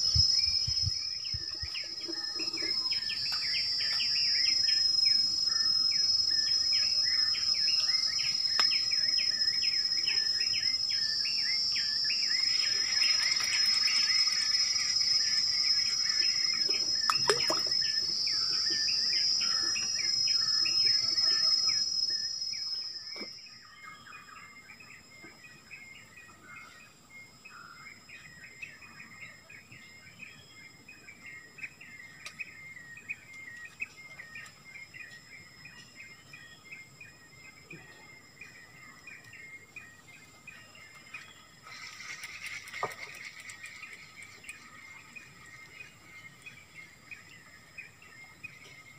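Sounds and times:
rapid repeated chirping: 0.0s - 23.6s, 38.6s - 48.9s
high insect drone: 0.0s - 48.9s.

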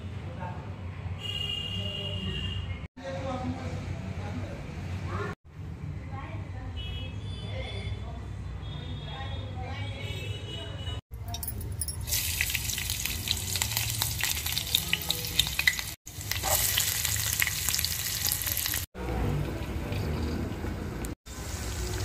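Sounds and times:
chilli sizzling in hot oil: 12.0s - 22.0s.

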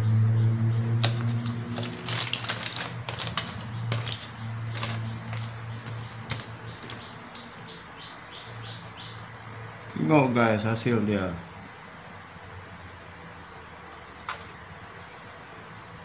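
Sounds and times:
aluminium foil crinkling: 1.0s - 7.8s.

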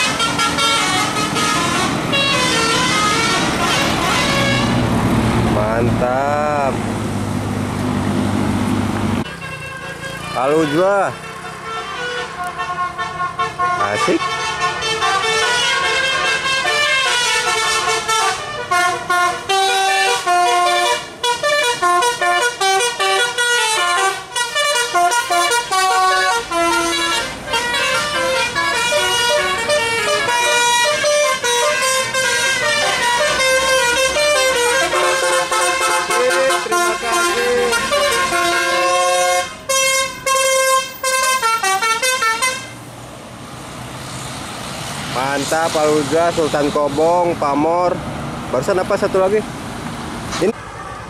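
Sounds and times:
musical bus air horns: 0.0s - 5.0s, 9.2s - 42.8s, 45.4s - 46.9s.

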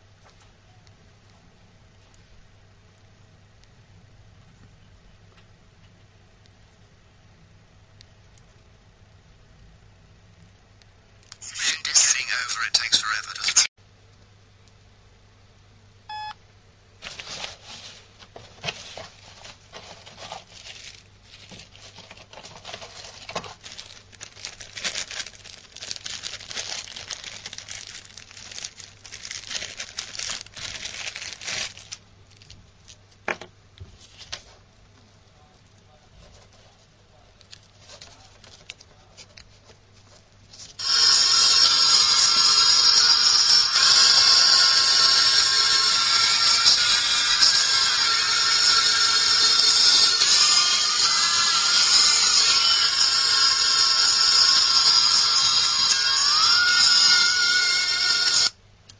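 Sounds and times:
radio static crackling: 11.4s - 13.7s
phone key beep: 16.1s - 16.4s.

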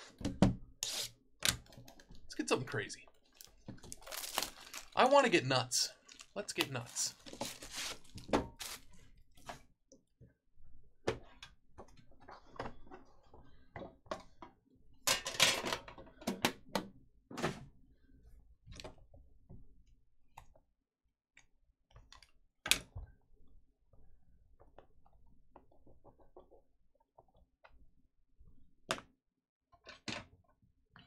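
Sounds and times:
rustling: 6.1s - 8.9s.

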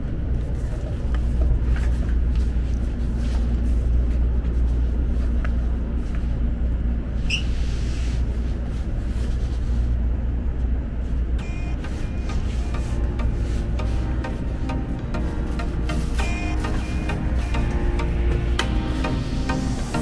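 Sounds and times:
train low rumble: 0.0s - 20.0s
high squeak: 7.3s - 7.5s.

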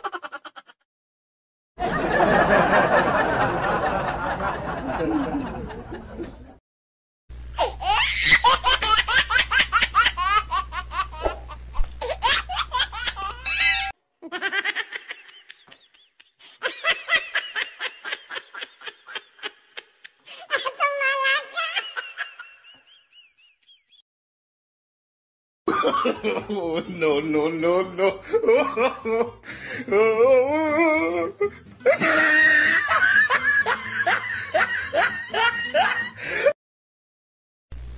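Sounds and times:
high-pitched laughter: 0.0s - 0.8s, 7.6s - 23.9s, 30.6s - 36.2s.

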